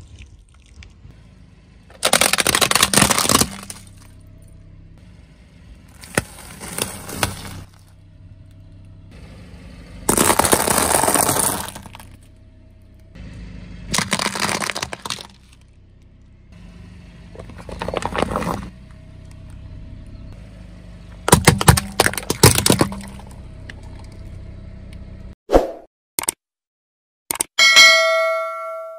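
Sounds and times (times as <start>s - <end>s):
car engine humming: 0.0s - 25.4s
tyre crunching objects: 1.9s - 4.2s, 5.9s - 7.9s, 10.1s - 12.3s, 13.9s - 15.7s, 17.3s - 18.8s, 21.2s - 23.4s.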